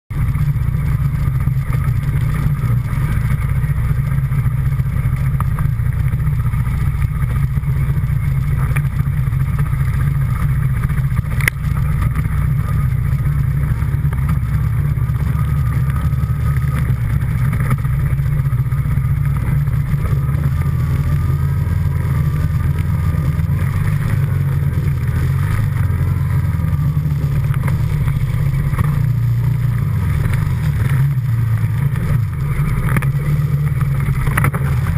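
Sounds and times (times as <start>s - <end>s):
atv engine running: 0.1s - 34.9s.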